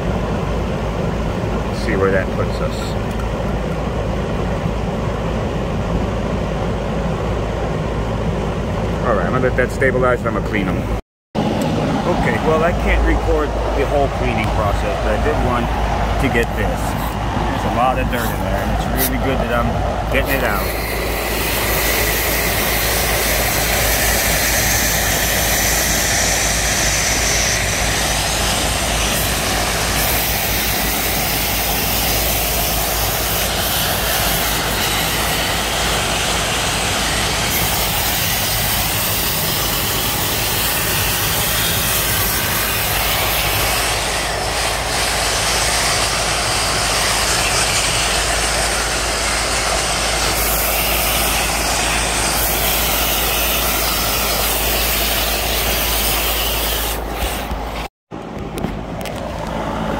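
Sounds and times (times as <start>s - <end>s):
machine drone: 0.0s - 59.9s
hose spraying water on metal: 20.1s - 57.9s.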